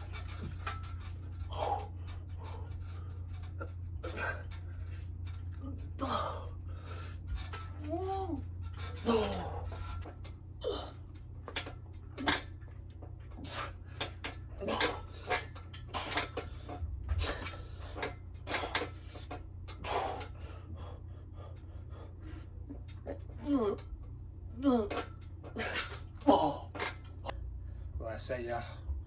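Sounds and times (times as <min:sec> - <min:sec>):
metal frame knocks and rattles: 0:00.0 - 0:06.1, 0:07.2 - 0:19.8
steady low hum: 0:00.0 - 0:29.0
man breathing hard: 0:01.4 - 0:03.2, 0:05.9 - 0:07.3, 0:19.8 - 0:22.7.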